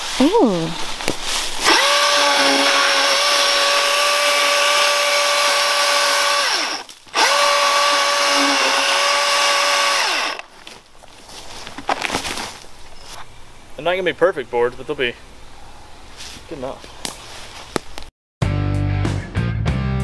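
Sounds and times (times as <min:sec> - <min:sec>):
electric chainsaw cutting log: 0:01.6 - 0:10.5.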